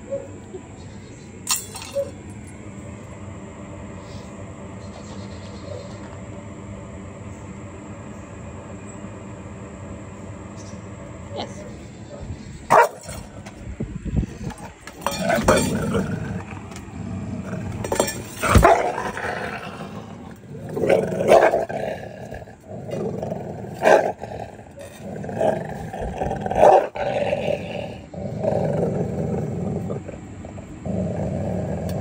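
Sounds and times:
metal bowl clanking: 1.5 - 2.2, 14.9 - 16.0, 17.7 - 18.7
dog growling: 14.4 - 32.0.

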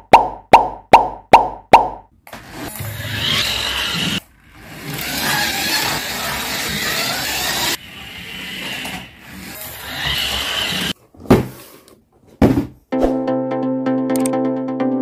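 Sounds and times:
toy car motor whirring: 2.4 - 11.0
electronic music: 13.0 - 15.0.

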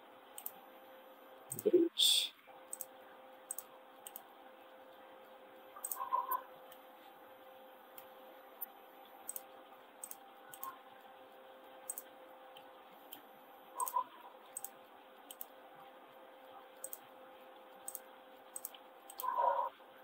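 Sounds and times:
faint steady hum: 0.0 - 20.0
mouse and keyboard clicks: 0.4 - 0.6, 2.7 - 2.9, 3.5 - 4.3, 5.8 - 6.4, 9.3 - 10.8, 11.9 - 13.2, 13.8 - 15.5, 16.8 - 17.1, 17.8 - 19.7.

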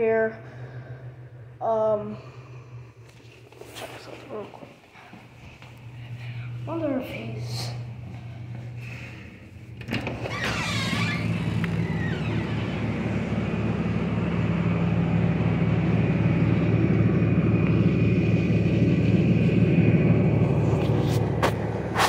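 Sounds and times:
motor running with low hum: 0.0 - 22.0.

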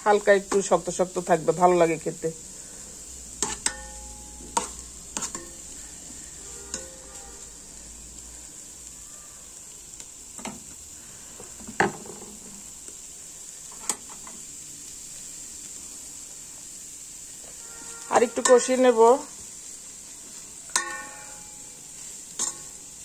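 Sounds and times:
vegetables sizzling in pot: 0.0 - 23.0
metal spoon scraping pot: 3.4 - 5.7.

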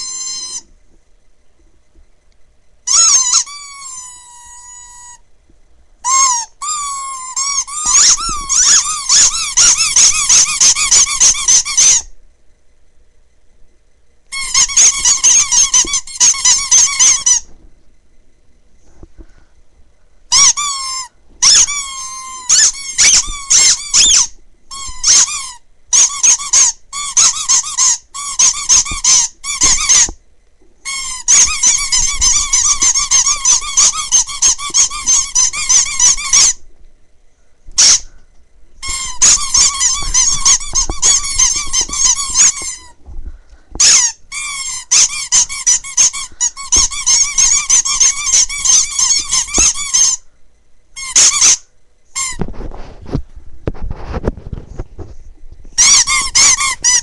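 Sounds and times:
rubber squeak toys squeaking: 0.0 - 0.7, 2.8 - 5.2, 6.0 - 12.1, 14.3 - 17.5, 20.3 - 30.2, 30.8 - 36.6, 37.8 - 38.1, 38.8 - 43.0, 43.8 - 50.2, 51.0 - 52.7, 55.8 - 57.0.

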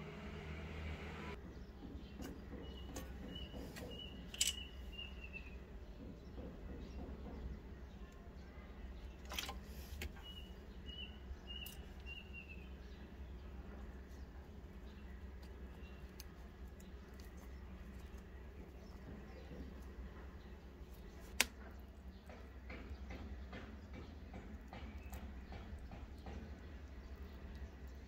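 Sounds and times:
steady low hum: 0.0 - 1.4
small bird chirping: 1.5 - 21.3.

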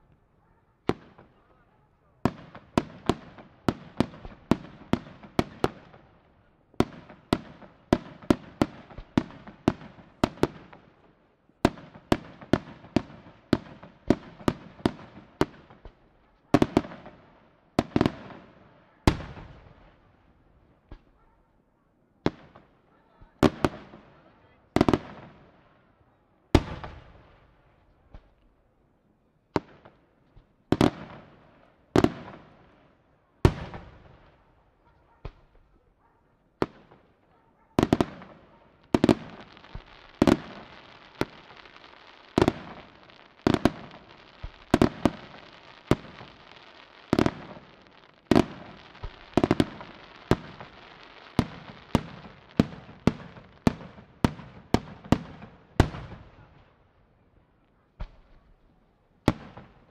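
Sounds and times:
firework crackle: 37.8 - 56.2.

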